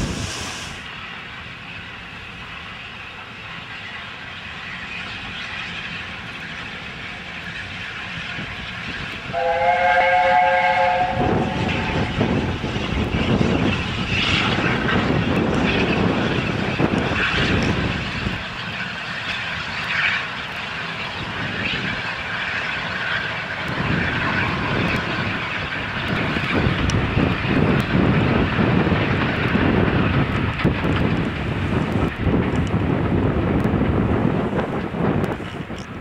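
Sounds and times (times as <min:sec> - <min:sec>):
steam locomotive exhaust roar: 0:00.0 - 0:36.0.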